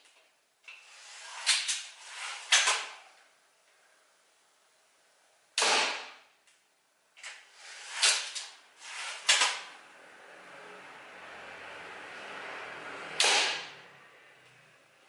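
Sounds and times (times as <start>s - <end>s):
slingshot rifle firing snap: 5.6s - 6.2s.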